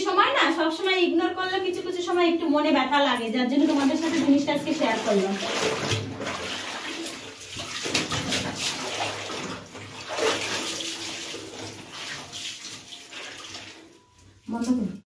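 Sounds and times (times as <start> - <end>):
soapy water sloshing in a tub: 3.5 - 14.4.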